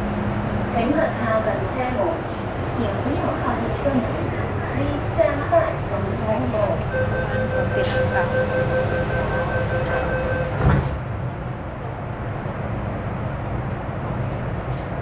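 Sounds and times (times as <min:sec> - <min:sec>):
subway carriage rumble: 0:00.0 - 0:15.0.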